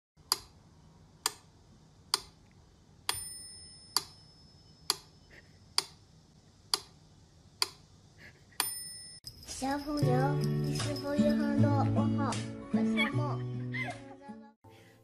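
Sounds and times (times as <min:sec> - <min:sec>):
metronome bell ringing: 0:03.1 - 0:04.9, 0:08.6 - 0:12.3.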